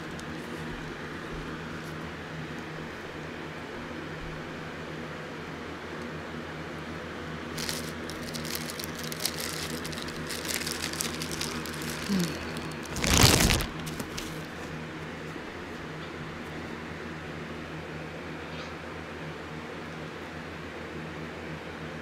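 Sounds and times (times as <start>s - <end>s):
plastic bag crinkling: 7.5s - 14.6s.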